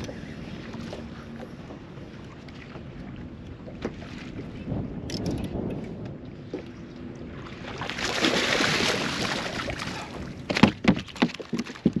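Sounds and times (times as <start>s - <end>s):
fish flopping on boat deck: 7.7s - 12.0s
fish thrashing and splashing: 7.7s - 12.0s.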